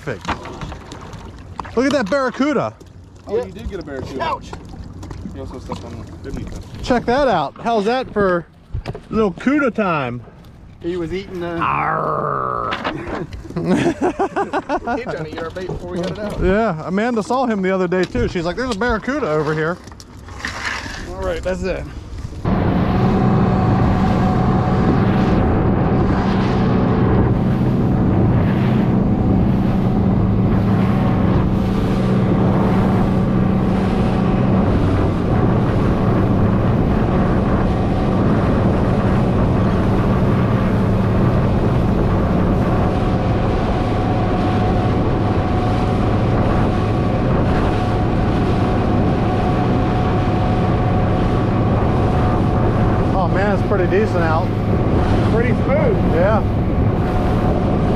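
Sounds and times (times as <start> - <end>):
outboard motor running: 0.0 - 9.2, 9.8 - 57.9
wind on microphone: 21.0 - 57.9.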